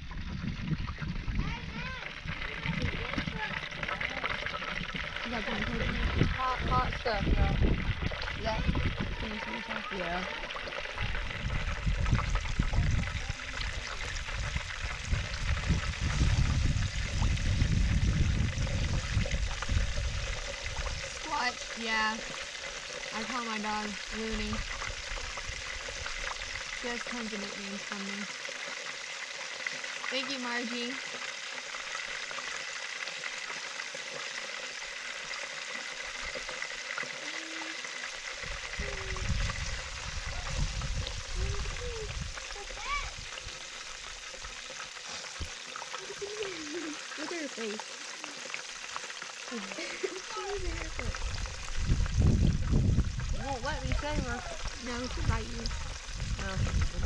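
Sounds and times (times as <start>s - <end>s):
oil sizzling in a pan: 3.3s - 57.0s
low rumble: 10.9s - 21.2s, 38.4s - 43.6s, 50.6s - 57.0s.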